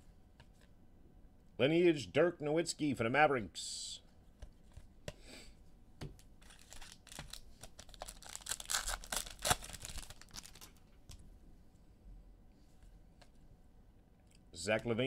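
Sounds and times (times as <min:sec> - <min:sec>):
foil wrapper tearing and crinkling: 0:06.4 - 0:10.8.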